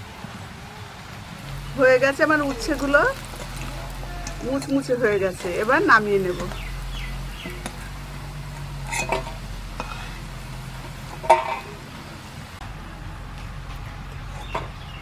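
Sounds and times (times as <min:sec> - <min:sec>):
frying oil sizzling: 0:00.0 - 0:15.0
metal spatula scraping a wok: 0:02.3 - 0:12.0
metal clanks: 0:07.3 - 0:12.1, 0:13.4 - 0:15.0.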